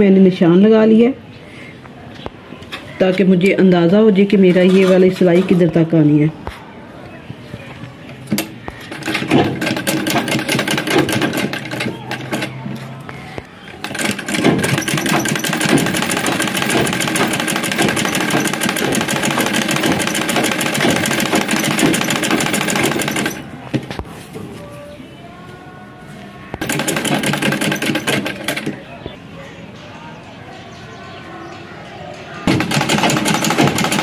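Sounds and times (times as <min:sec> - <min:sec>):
sewing machine stitching: 0:08.8 - 0:12.6, 0:13.8 - 0:23.4, 0:26.6 - 0:28.8, 0:32.5 - 0:34.0.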